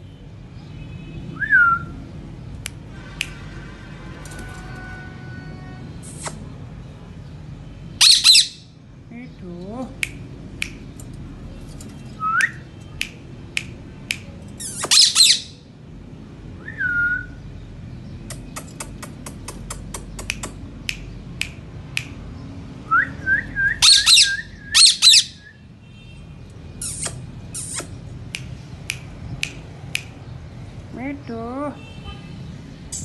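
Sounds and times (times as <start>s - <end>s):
parakeets squawking: 8.0s - 8.7s, 14.6s - 15.6s, 23.8s - 25.4s, 26.7s - 28.1s
sharp clicks: 10.0s - 11.2s, 11.8s - 15.0s, 18.3s - 22.2s, 26.9s - 30.2s.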